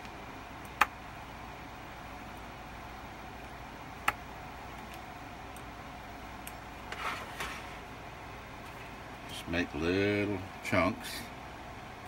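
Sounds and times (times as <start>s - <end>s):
steady low hum: 0.0s - 12.0s
pizza cutter scraping board: 6.9s - 7.8s.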